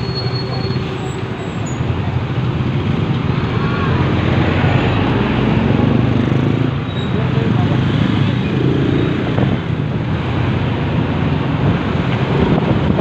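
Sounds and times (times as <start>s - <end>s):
wind noise on microphone: 9.1s - 13.0s.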